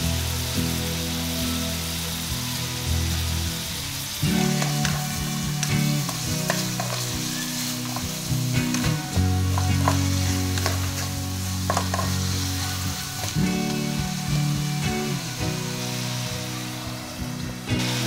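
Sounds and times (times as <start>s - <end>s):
background music: 0.0s - 18.0s
food sizzling in wok: 0.0s - 18.0s
spatula clicking against pan: 5.6s - 7.2s.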